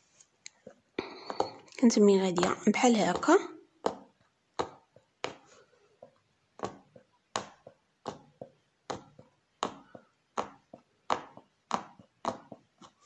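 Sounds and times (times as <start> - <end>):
punch needle popping through fabric: 6.6 - 13.0.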